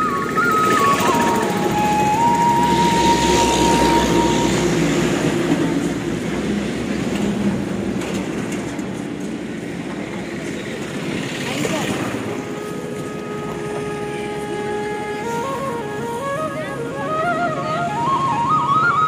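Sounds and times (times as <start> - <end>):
high whistle-like tone: 0.0 - 5.2
passing vehicle rumble: 0.0 - 19.0.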